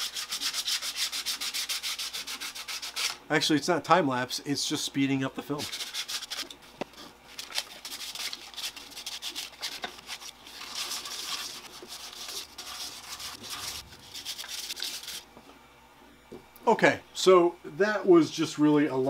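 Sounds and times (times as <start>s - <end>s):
sandpaper scratching plastic: 0.0s - 3.2s, 5.6s - 6.6s, 7.3s - 15.2s.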